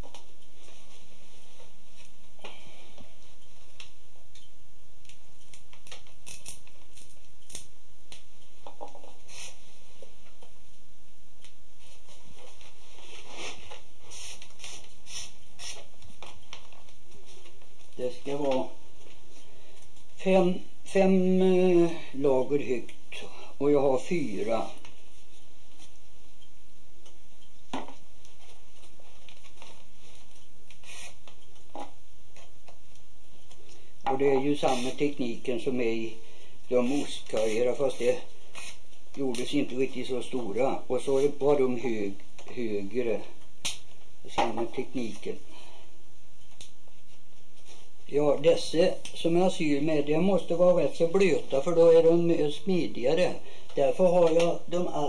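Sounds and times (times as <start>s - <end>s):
steady low hum: 0.0s - 55.0s
wood strips crackling and creaking: 3.6s - 8.2s.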